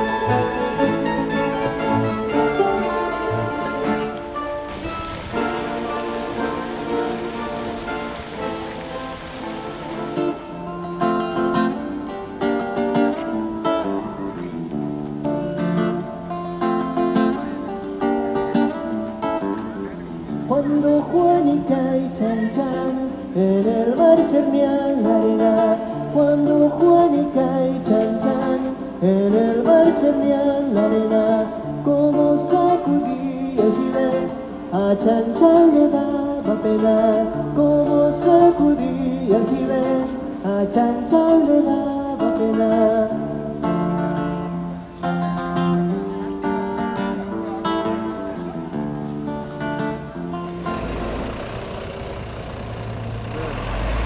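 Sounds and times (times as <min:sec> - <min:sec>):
acoustic guitar plucked melody: 0:00.0 - 0:54.0
low bass notes: 0:50.4 - 0:54.0.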